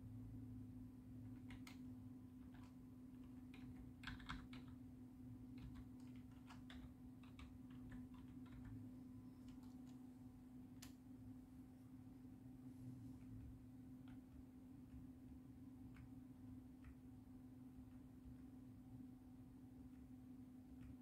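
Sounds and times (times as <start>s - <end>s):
steady low hum: 0.0s - 21.0s
computer keyboard keystrokes: 1.2s - 4.8s, 5.5s - 10.0s, 15.8s - 17.1s.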